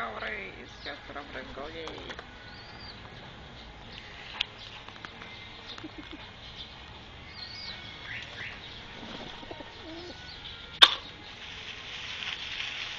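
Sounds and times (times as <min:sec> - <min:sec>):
bird chirps: 0:02.4 - 0:11.3
pigeons cooing: 0:07.4 - 0:11.1.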